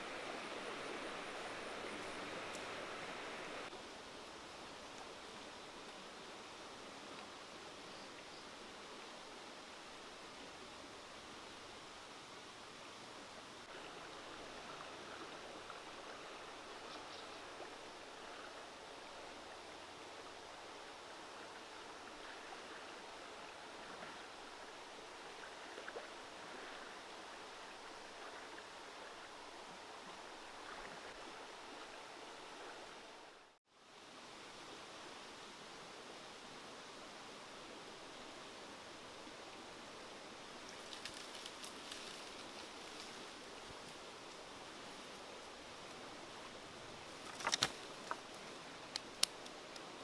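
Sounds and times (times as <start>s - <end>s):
faint outdoor hiss: 0.0s - 50.0s
small rustles: 40.6s - 46.1s, 47.0s - 49.9s.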